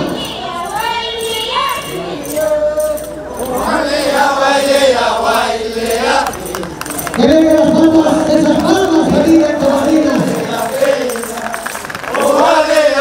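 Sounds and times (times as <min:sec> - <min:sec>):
group chanting in held notes: 0:03.5 - 0:06.3, 0:12.1 - 0:13.0.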